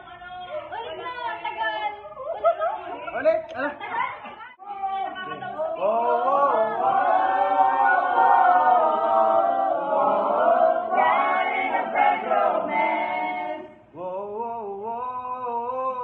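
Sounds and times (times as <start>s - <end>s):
group singing unaccompanied: 5.3s - 16.0s.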